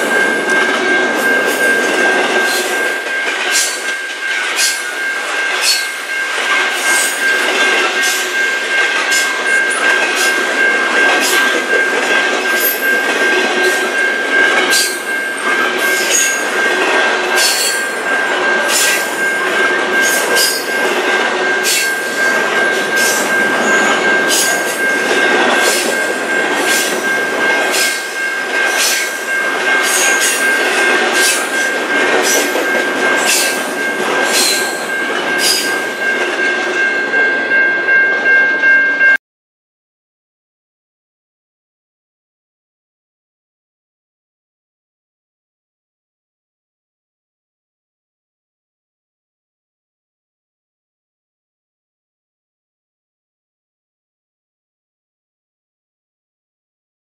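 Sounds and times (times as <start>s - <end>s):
train rumble: 0.0s - 39.1s
high-pitched wheel squeal: 5.6s - 6.0s.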